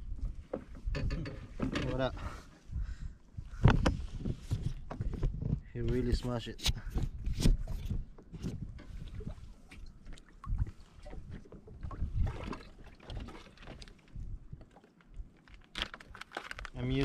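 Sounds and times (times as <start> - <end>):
small waves lapping hull: 6.7 - 16.8.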